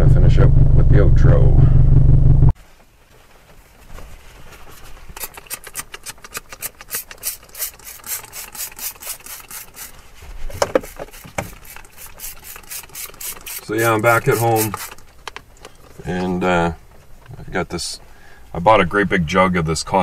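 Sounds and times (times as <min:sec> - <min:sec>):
cloth rubbing plastic dashboard: 0:02.6 - 0:17.3.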